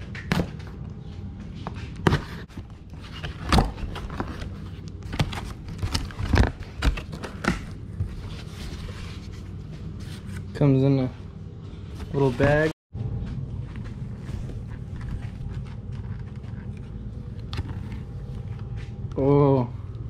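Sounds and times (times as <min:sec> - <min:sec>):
cardboard flaps rustling and thumping: 0:12.0 - 0:12.7.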